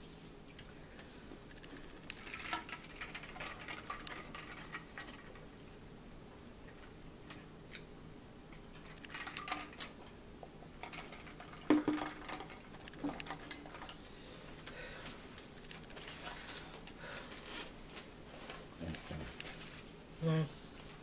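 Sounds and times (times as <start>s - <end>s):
plastic tumbler set on table: 1.5s - 5.4s, 8.8s - 10.0s, 10.7s - 14.0s
tableware clicks and rustles: 2.2s - 5.4s, 8.8s - 14.0s.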